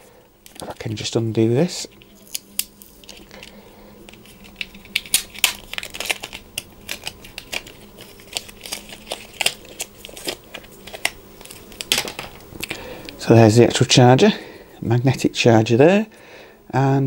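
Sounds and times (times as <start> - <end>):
packaging wrap crinkling: 0.4 - 13.2.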